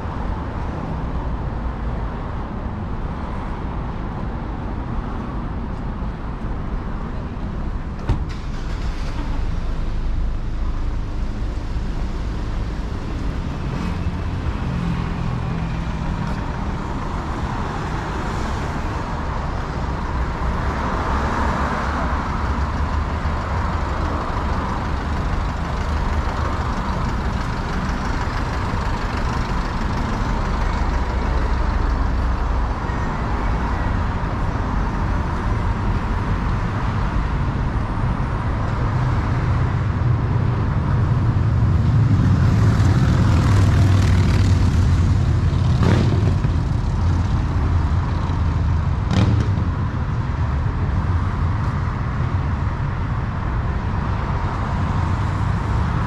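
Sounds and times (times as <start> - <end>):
road traffic: 0.0 - 56.0
vehicle passing by: 40.7 - 49.8.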